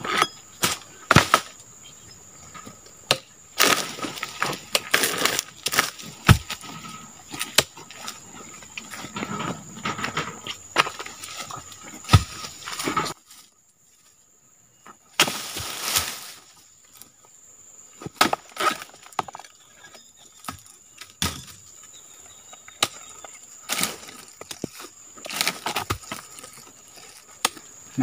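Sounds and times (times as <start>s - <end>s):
fronds rustling: 2.4s - 14.2s, 15.1s - 17.2s
chisel chopping palm: 4.7s - 6.6s.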